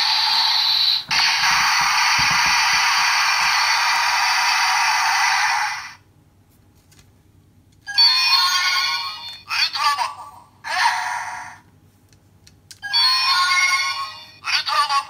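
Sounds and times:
toy hissing electronic sound effect: 0.0s - 6.0s.

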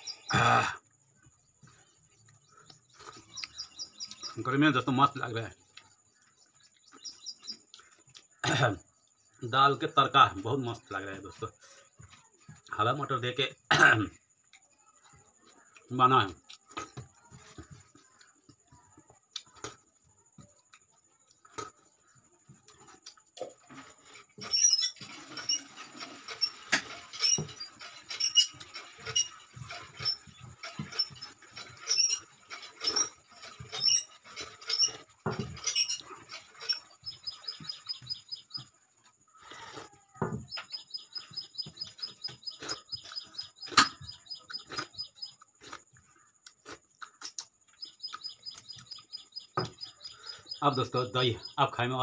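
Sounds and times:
fingers scraping a plate: 23.8s - 38.3s
high chirps: 40.5s - 45.5s
wet chewing and lip smacks: 44.7s - 48.3s.

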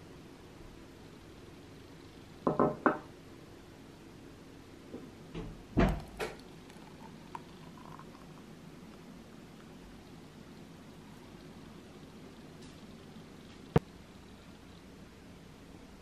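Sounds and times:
kitchenware knocking on countertop: 2.4s - 3.0s.

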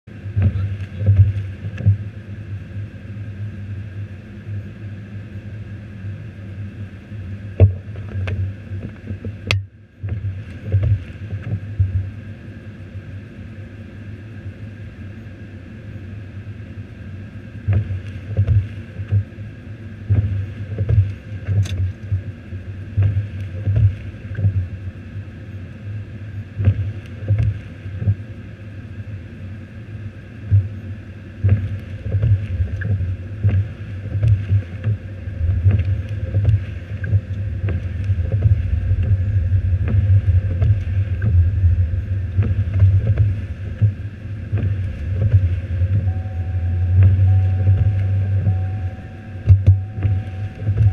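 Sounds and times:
car engine running: 0.0s - 2.7s, 20.0s - 25.1s, 30.5s - 50.9s
wind buffeting car: 0.1s - 2.8s, 7.4s - 12.4s, 17.6s - 19.4s, 20.0s - 25.6s, 26.6s - 28.3s, 30.4s - 50.9s.

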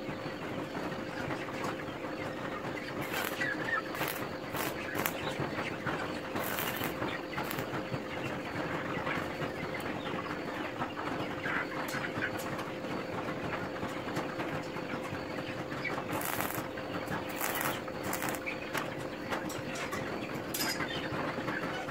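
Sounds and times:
steady hum: 2.2s - 10.4s, 15.5s - 19.5s
arc welding crackling: 3.0s - 5.4s, 6.3s - 7.9s, 16.0s - 18.9s.

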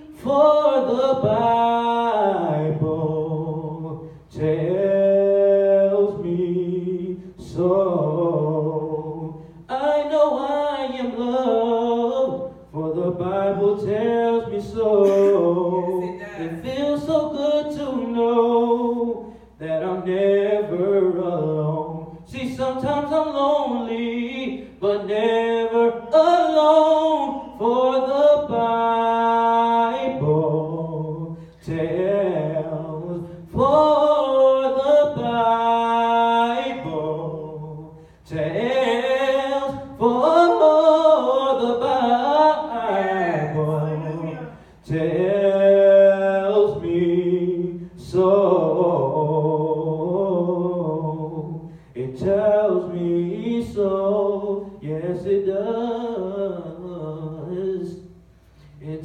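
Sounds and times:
man singing unaccompanied: 0.0s - 59.0s.

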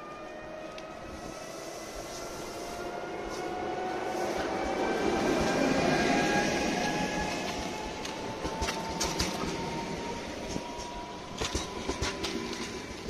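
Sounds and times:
train electric whine: 0.0s - 13.0s
wheels clicking over rail joints: 7.4s - 13.0s.

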